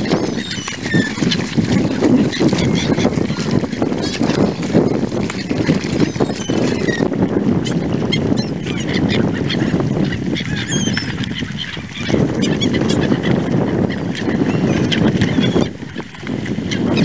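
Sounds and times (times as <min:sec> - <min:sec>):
swans calling: 0:00.0 - 0:04.2
water splashing: 0:00.0 - 0:17.0.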